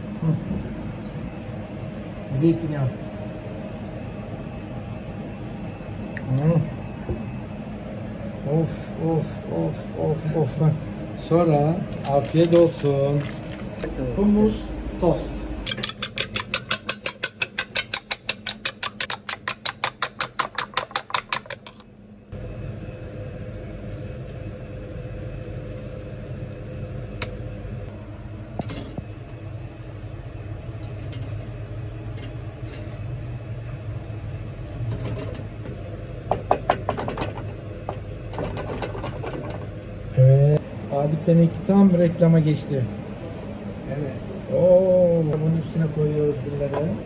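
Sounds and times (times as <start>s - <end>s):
fork whisking eggs in metal bowl: 15.7s - 21.8s.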